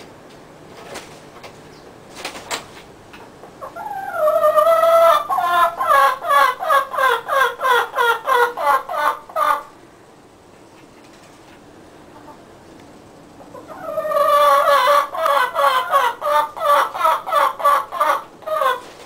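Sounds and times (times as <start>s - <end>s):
chicken calling: 3.6s - 9.8s, 12.1s - 12.5s, 13.4s - 19.0s.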